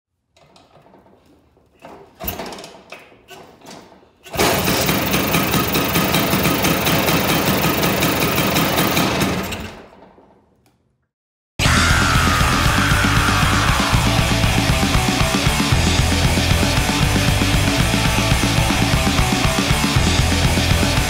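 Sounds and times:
kickstart clunks: 0:01.8 - 0:10.7.

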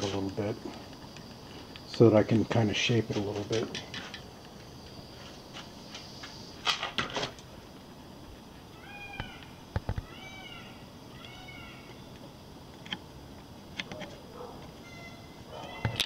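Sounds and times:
cat meowing: 0:08.8 - 0:11.9.

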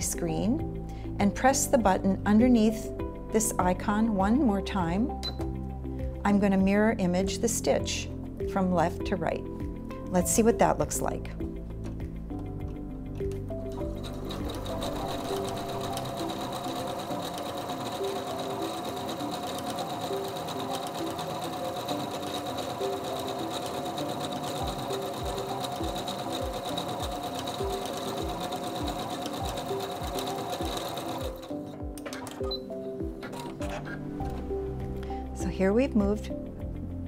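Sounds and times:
background music with beat: 0:09.5 - 0:17.6, 0:24.6 - 0:37.0
sewing machine running: 0:13.7 - 0:32.6.

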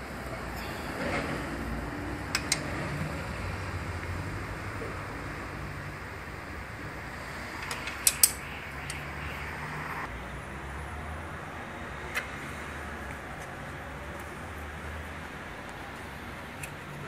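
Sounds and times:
tools clicking on engine parts: 0:02.3 - 0:02.7, 0:07.6 - 0:09.0.

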